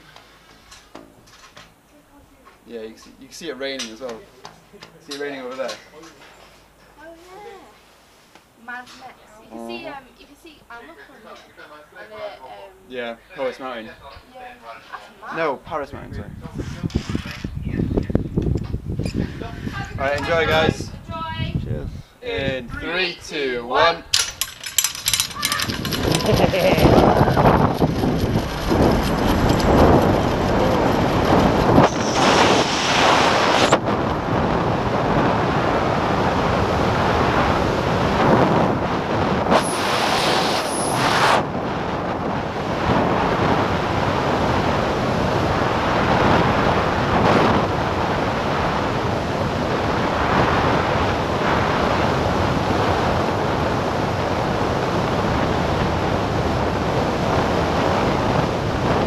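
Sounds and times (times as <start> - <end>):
wind rushing over microphone: 15.7 - 22.8, 24.0 - 59.0.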